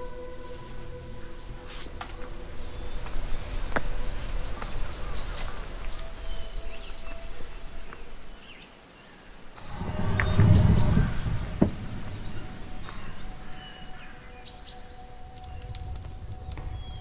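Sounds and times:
low uneven rushing noise: 9.6 - 17.0.

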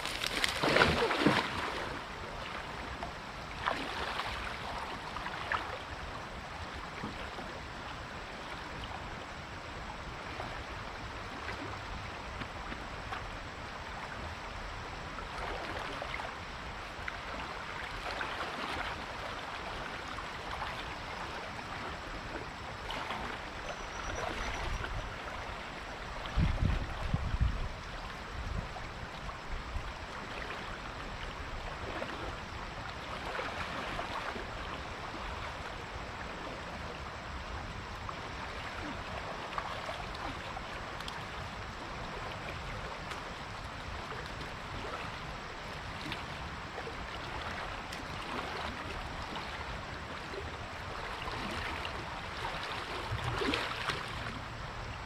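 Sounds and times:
water sloshing around wading person: 0.0 - 7.6, 15.0 - 55.0
flowing water: 0.0 - 55.0.

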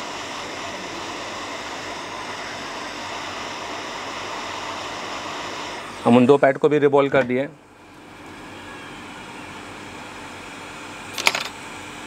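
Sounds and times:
hiss of rushing air: 0.0 - 6.4.

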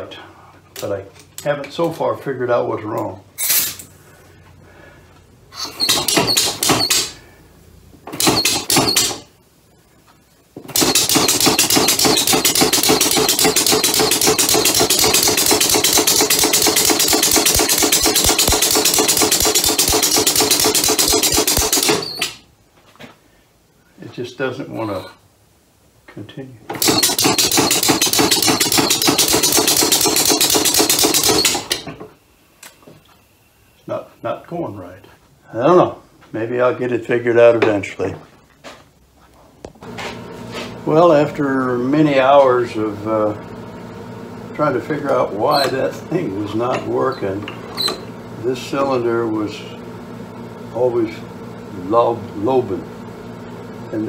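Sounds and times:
compressed-air motor puffing: 10.7 - 22.4, 26.7 - 31.9.

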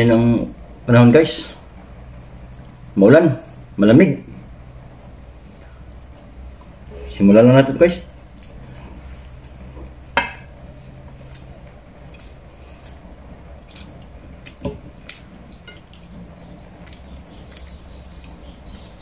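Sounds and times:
steady low hum: 0.0 - 19.0
wet chewing and mouth smacks: 8.4 - 9.4, 11.2 - 18.4.

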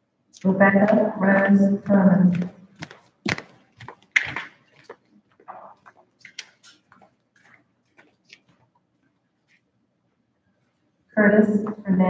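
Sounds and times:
soft rustling: 2.0 - 9.8.

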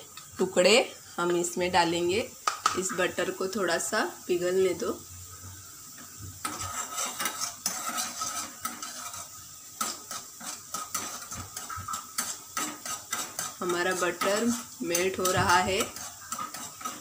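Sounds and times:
metal spoon scraping a pan: 6.4 - 17.0.

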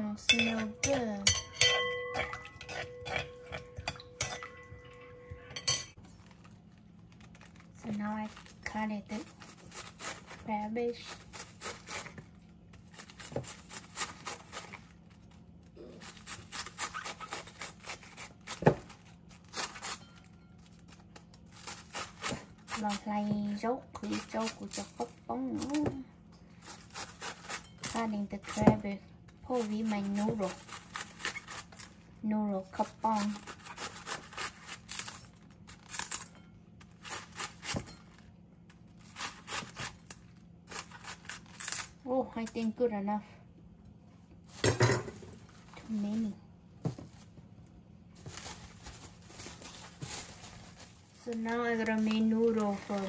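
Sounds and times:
knife slicing cabbage: 9.1 - 20.2, 20.8 - 25.9, 26.6 - 32.0, 32.6 - 38.1, 39.0 - 42.0.

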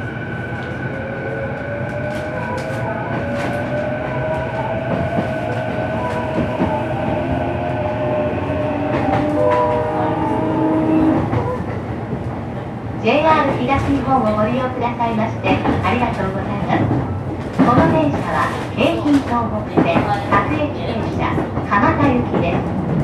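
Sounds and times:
wheel and rail rumble: 0.0 - 23.0.

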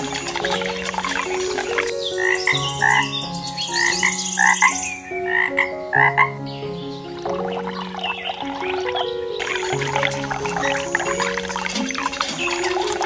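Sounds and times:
water pouring: 0.0 - 1.9, 7.2 - 13.0
frog croaking: 0.0 - 3.1, 3.8 - 6.4, 7.1 - 13.0
background music: 0.0 - 13.0.

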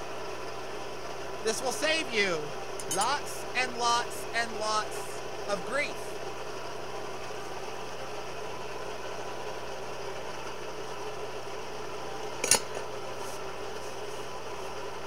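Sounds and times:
forge humming: 0.0 - 15.0
sharp metallic clink: 2.8 - 3.2.

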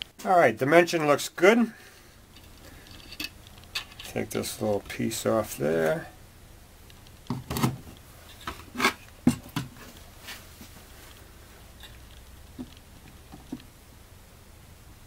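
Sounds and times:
metal and plastic parts clinking: 2.3 - 4.2.

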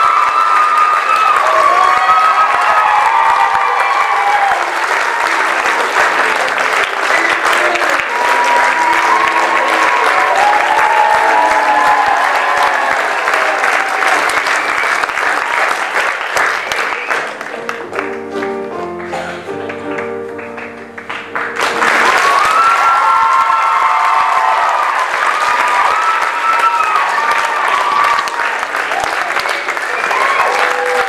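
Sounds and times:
audience applauding: 0.0 - 31.0
music playing: 4.6 - 11.0, 16.8 - 22.7.

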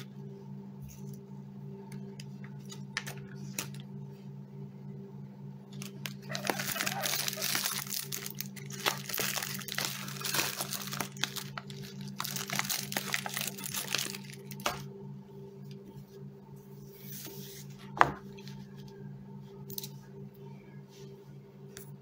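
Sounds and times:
plastic pouch crinkling: 5.7 - 14.8.

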